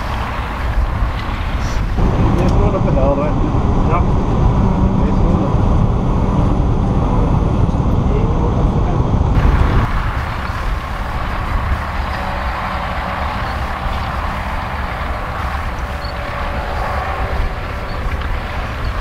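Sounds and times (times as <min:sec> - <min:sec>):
tractor diesel engine droning: 0:09.4 - 0:19.0.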